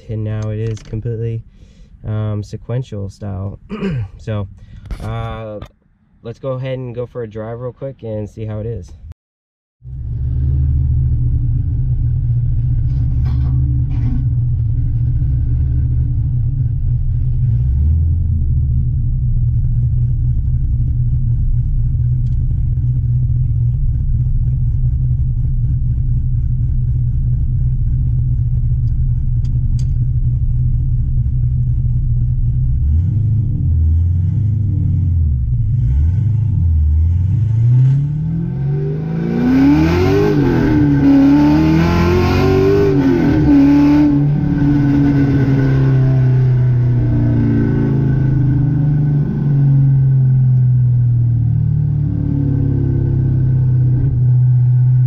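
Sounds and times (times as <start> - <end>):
car engine running and revving: 9.8 - 55.0.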